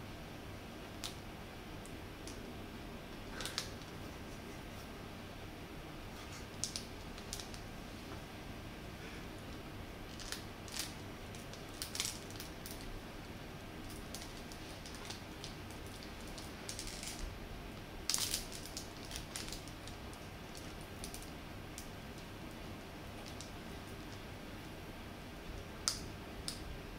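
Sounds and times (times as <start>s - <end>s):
plastic bag crinkling: 10.1s - 13.0s, 13.8s - 17.3s, 18.0s - 21.4s.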